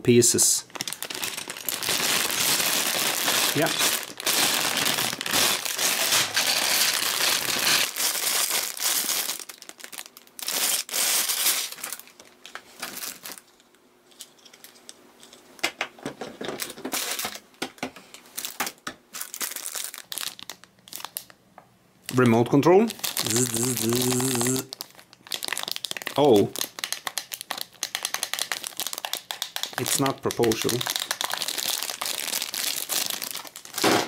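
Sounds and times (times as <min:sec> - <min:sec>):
plastic bags crinkling: 0:00.7 - 0:13.7, 0:16.4 - 0:17.4, 0:18.3 - 0:21.4, 0:22.1 - 0:34.0
plastic parts clicking and knocking: 0:26.8 - 0:31.0.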